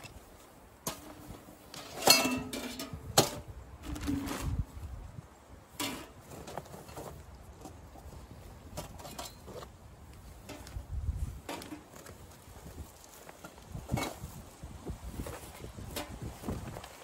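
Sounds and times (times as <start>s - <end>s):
metal stove pipes clinking: 0.9s - 4.1s.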